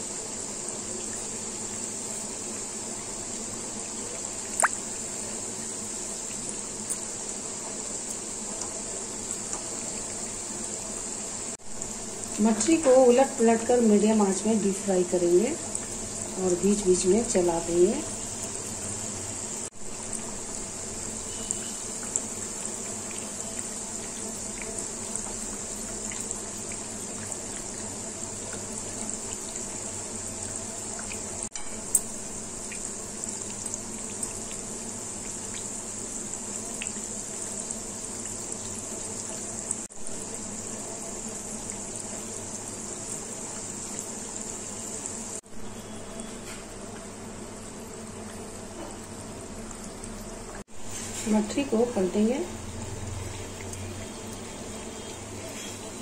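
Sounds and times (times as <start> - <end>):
oil bubbling and sizzling: 0.0 - 56.0.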